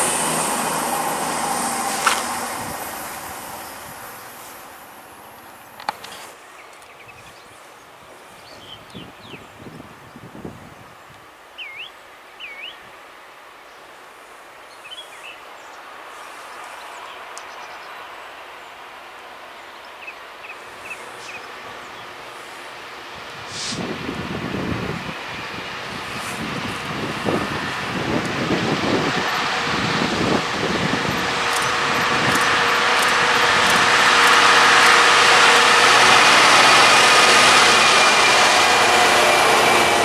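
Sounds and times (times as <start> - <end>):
distant train rushing: 0.0 - 6.3, 15.8 - 40.0
wind buffeting microphone: 8.4 - 11.1, 23.1 - 40.0.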